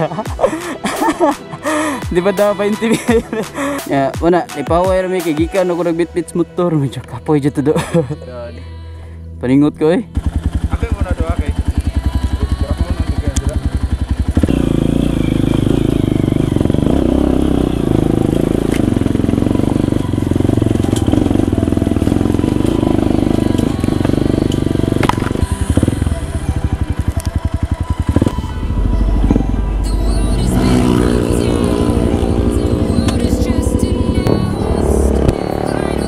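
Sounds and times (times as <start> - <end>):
background music: 0.0 - 36.0
dirt bike engine running: 10.1 - 36.0.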